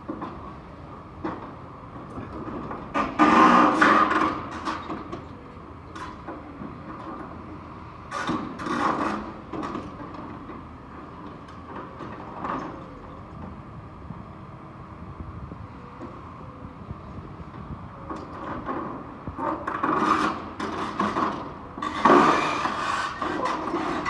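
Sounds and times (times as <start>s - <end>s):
excavator running: 0.0s - 24.0s
metal crunching and screeching: 21.8s - 24.0s.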